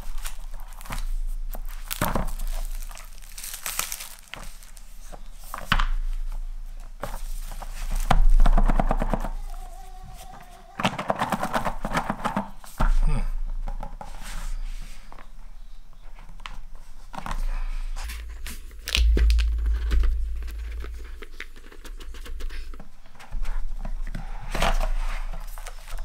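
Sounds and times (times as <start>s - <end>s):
plastic shrink wrap crinkling: 0.0s - 5.8s, 18.2s - 22.6s.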